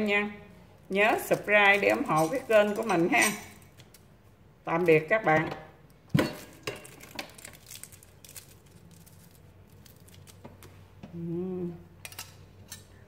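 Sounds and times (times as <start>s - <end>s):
low steady hum: 0.0s - 13.0s
person humming: 11.0s - 11.9s.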